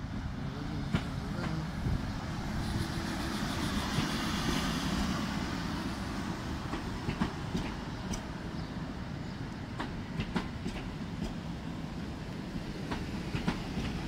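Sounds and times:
train rumble: 0.0s - 14.0s
train wheels clacking over rail joints: 6.6s - 8.3s, 9.7s - 11.5s, 12.8s - 14.0s.

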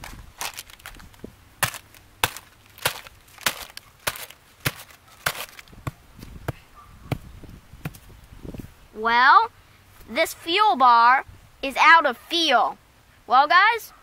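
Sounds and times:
hammer striking energy bar wrapper: 1.6s - 5.6s.

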